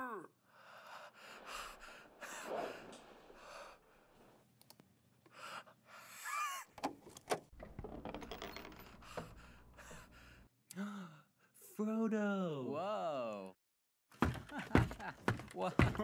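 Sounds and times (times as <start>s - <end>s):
rustling noise: 1.7s - 4.5s.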